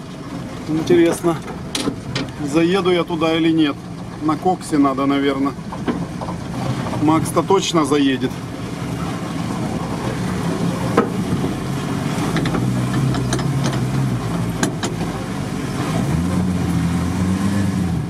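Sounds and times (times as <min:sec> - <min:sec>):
van engine running under load: 0:00.0 - 0:18.0
van body knocking over bumps: 0:08.6 - 0:15.2.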